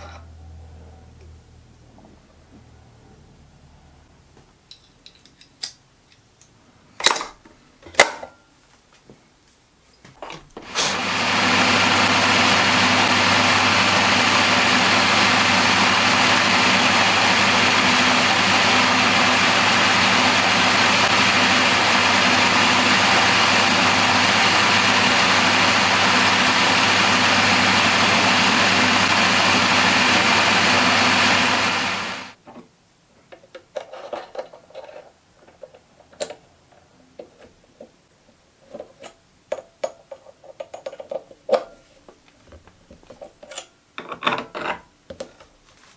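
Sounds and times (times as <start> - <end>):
milling machine spindle running: 10.6 - 32.4.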